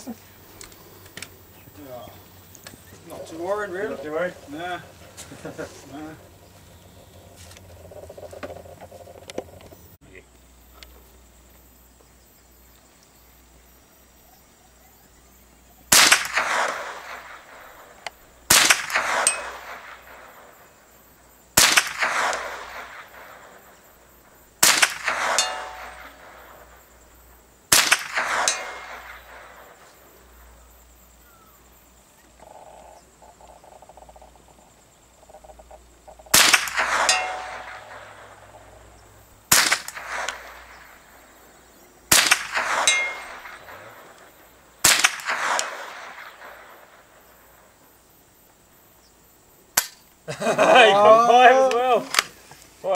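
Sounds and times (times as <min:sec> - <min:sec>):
rifle shots: 0:15.9 - 0:20.7, 0:21.6 - 0:23.9, 0:24.6 - 0:26.9, 0:27.7 - 0:29.9, 0:36.3 - 0:38.7, 0:39.4 - 0:41.4, 0:42.1 - 0:47.3.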